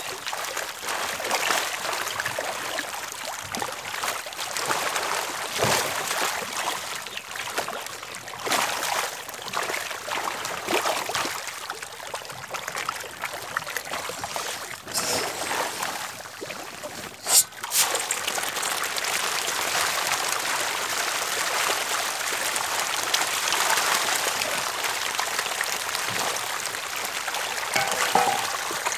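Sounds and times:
fish splashing in pond water: 0.1s - 28.9s
sharp knock: 27.8s - 28.8s.

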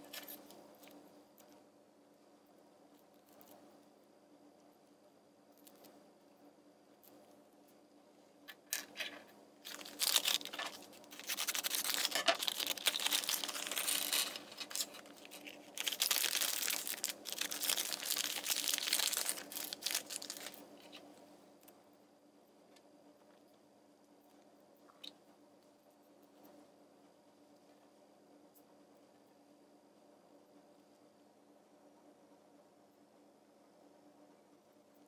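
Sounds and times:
foil bag crinkling and tearing: 9.6s - 21.0s.

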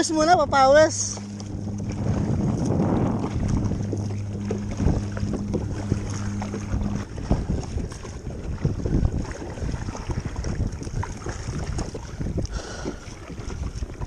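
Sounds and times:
steady low hum: 0.0s - 14.0s
waves splashing around kayak: 0.0s - 14.0s
wind buffeting microphone: 0.0s - 14.0s
low thumps: 0.3s - 9.5s.

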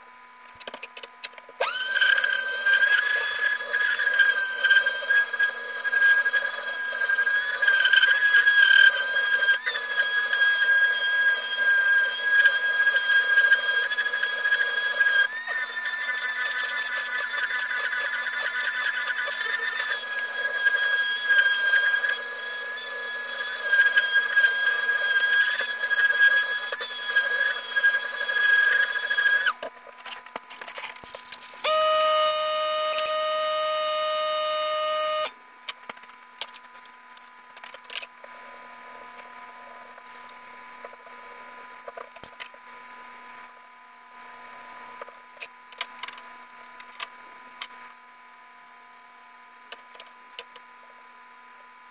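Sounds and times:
electric sander whining: 1.6s - 29.6s, 31.6s - 35.3s
loud steady pitched tone: 1.6s - 29.6s, 31.6s - 35.4s.

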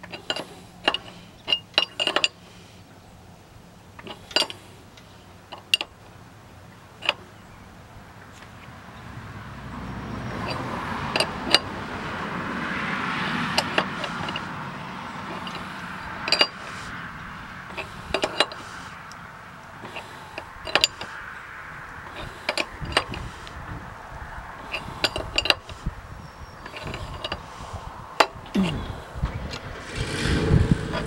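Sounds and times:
hand tool clinking on metal pulley: 0.0s - 2.4s, 4.0s - 4.6s, 10.3s - 11.7s, 13.6s - 14.5s, 15.3s - 16.8s, 17.7s - 18.8s, 19.8s - 21.2s, 22.0s - 23.4s, 24.7s - 25.8s, 26.6s - 27.5s.

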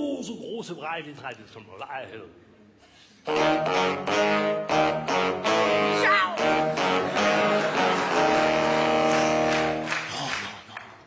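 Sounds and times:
saxophone ensemble playing chords: 3.2s - 10.1s.

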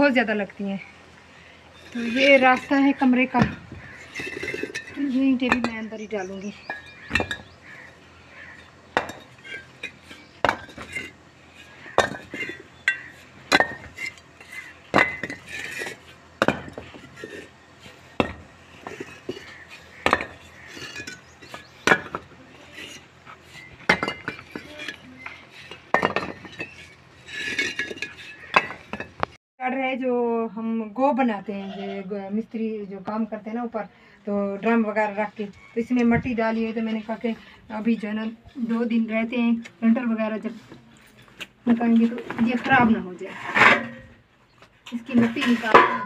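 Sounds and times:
bricks clinking together: 3.4s - 5.8s, 6.7s - 7.8s, 8.5s - 29.3s.

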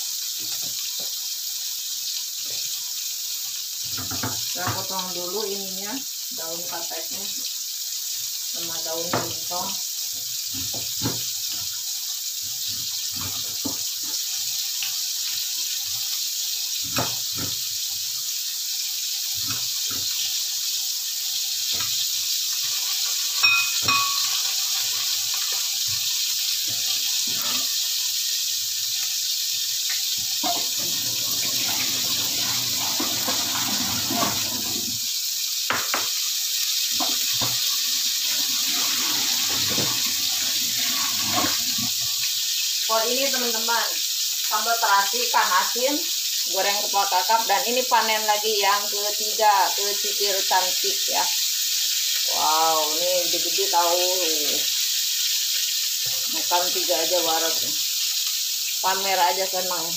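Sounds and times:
fish frying in hot oil: 0.0s - 59.9s
oil popping and crackling: 9.4s - 42.6s.

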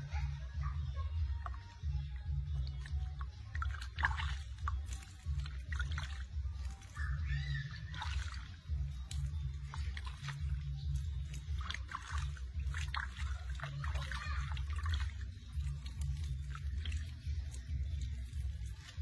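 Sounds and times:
water splashing in a plastic basin: 1.2s - 19.0s
monkey squeaking: 4.4s - 19.0s.

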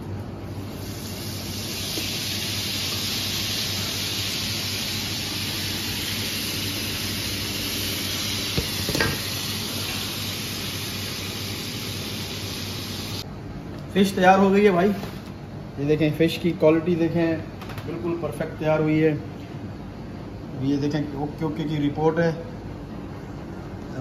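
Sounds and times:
fish sizzling in hot oil: 0.6s - 13.2s.

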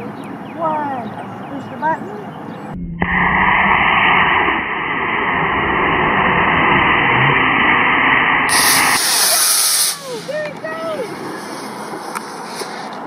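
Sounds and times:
rocket motor thrust hiss: 8.5s - 13.0s.

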